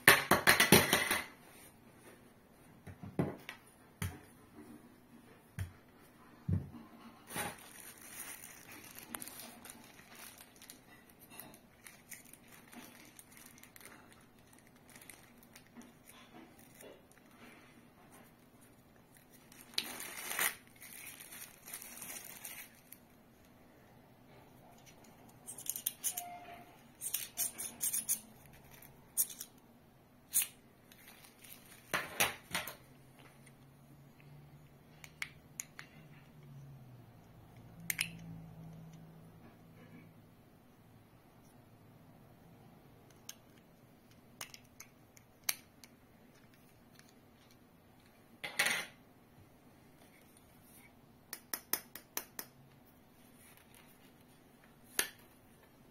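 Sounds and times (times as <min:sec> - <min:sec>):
plastic bag crinkling: 0:07.3 - 0:17.4, 0:19.0 - 0:23.2, 0:30.9 - 0:32.0.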